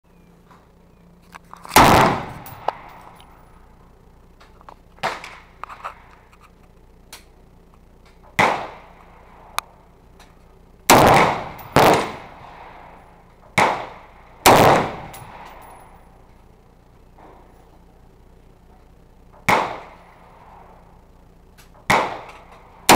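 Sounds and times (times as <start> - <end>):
rifle shots: 1.7 - 3.2, 5.0 - 5.5, 8.2 - 9.0, 10.9 - 16.0, 19.4 - 20.7, 21.7 - 22.9
faint cracks and clicks: 4.3 - 8.4, 21.5 - 22.7.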